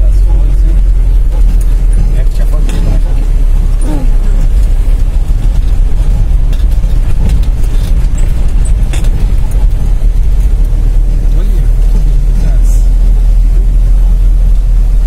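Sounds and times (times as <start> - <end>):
engine and tyres rumbling: 0.0 - 15.0
faint knocks and rattles: 4.4 - 12.4.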